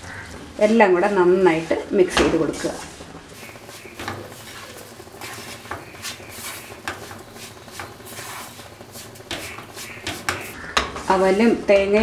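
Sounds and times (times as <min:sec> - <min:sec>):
wooden spatula scraping a pan: 0:02.6 - 0:11.5.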